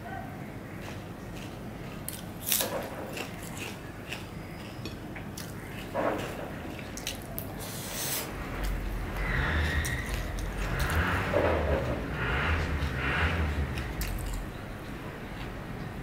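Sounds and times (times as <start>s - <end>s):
low rumble: 8.3s - 15.7s.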